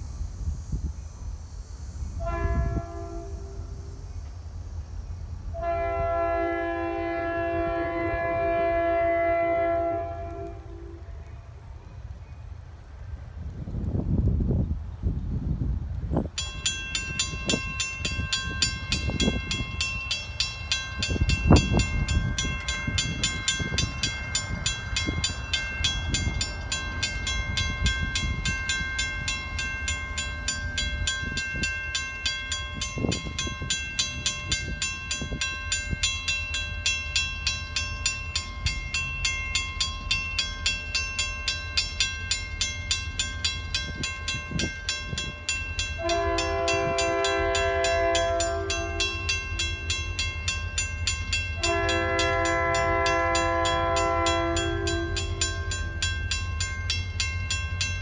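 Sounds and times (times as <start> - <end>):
railroad crossing bell ringing: 16.2 - 58.0.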